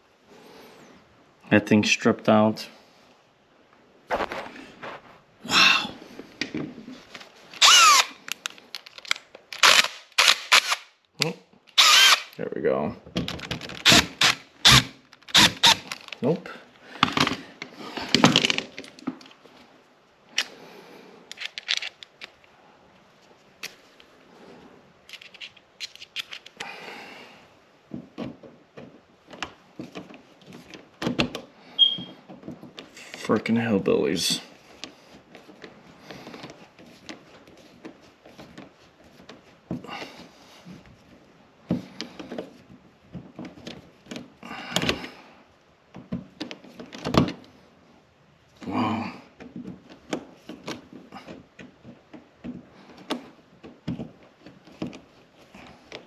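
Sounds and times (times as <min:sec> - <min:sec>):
hand tools clicking and scraping: 0:25.1 - 0:26.8.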